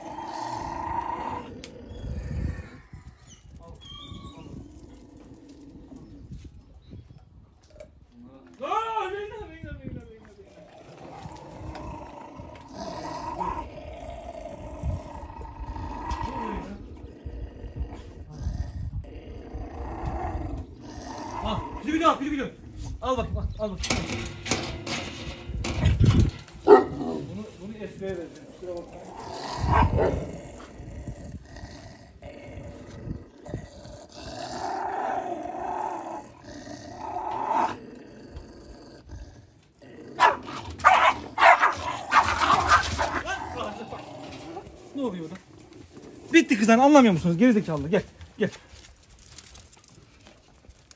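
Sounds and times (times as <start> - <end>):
dogs barking and snarling: 0.0 - 3.5, 10.5 - 23.0, 24.2 - 27.5, 28.1 - 46.8
dogs growling: 0.0 - 6.8, 10.3 - 23.0, 23.8 - 47.7.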